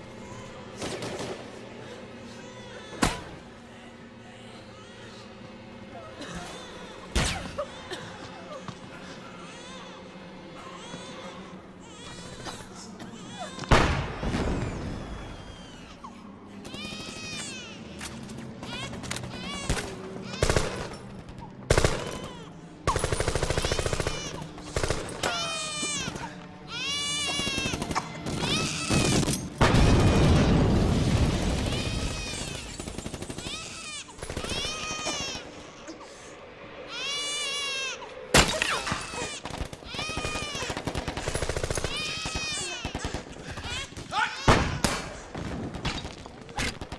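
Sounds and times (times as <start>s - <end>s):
automatic gunfire: 21.7s - 22.2s
automatic gunfire bursts: 21.7s - 22.2s, 22.9s - 25.2s
baby crying: 23.5s - 29.4s, 33.4s - 40.8s, 41.7s - 44.5s.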